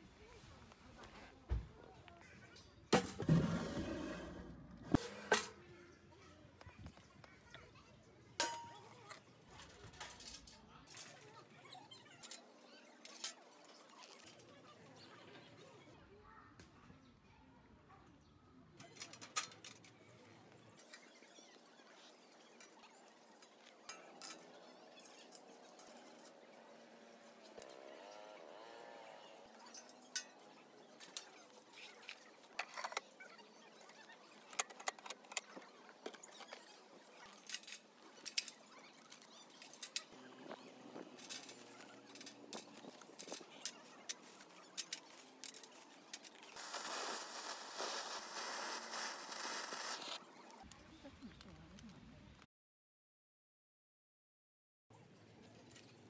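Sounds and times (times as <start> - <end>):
metal grill parts clinking: 8.4 - 11.3, 29.6 - 33.0, 41.0 - 46.5
charcoal lighter hissing: 46.2 - 50.2.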